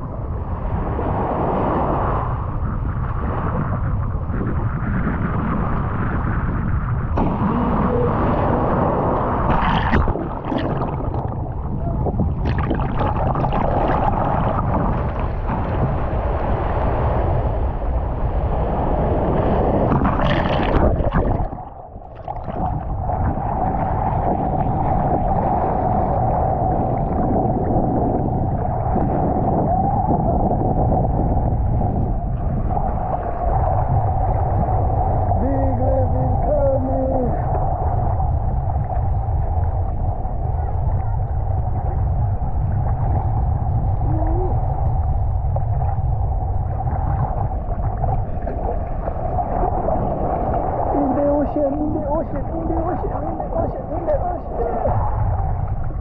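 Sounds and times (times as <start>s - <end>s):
wind rumble on microphone: 0.0s - 56.0s
mid-pitched hum: 5.6s - 56.0s
sea water lapping: 7.1s - 38.1s, 42.5s - 56.0s
small waves washing over sand: 48.2s - 55.2s.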